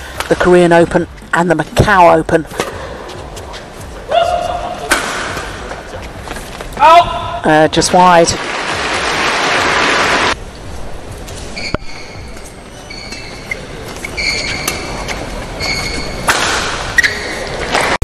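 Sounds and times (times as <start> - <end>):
shoes squeaking on court: 0.4 - 6.8, 11.2 - 18.0
racket hitting shuttlecock: 4.2 - 5.8, 15.7 - 18.0
crowd noise: 9.6 - 18.0.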